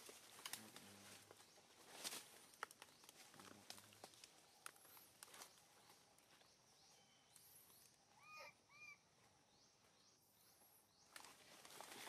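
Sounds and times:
short arching calls: 8.2s - 9.1s.

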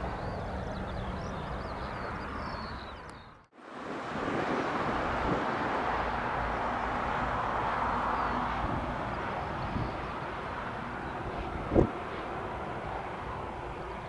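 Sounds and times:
jet engine rushing: 3.6s - 14.0s.

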